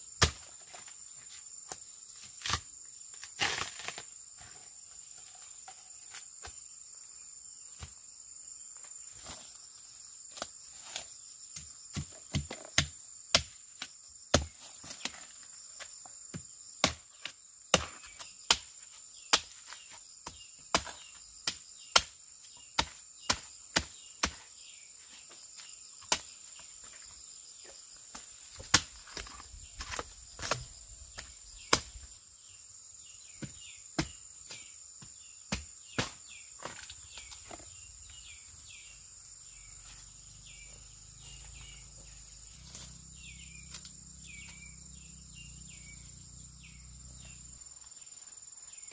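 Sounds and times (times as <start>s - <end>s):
high insect drone: 0.0s - 48.9s
blade chopping bamboo: 0.2s - 0.8s, 2.3s - 4.1s, 10.4s - 15.3s, 16.8s - 18.7s, 19.3s - 22.2s, 22.8s - 24.5s, 35.5s - 37.6s
birds chirping: 30.7s - 48.9s.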